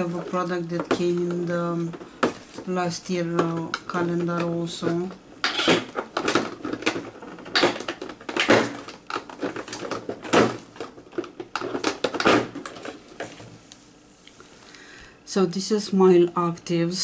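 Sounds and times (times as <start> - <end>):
cardboard packaging rustling and clicking: 3.4 - 13.6.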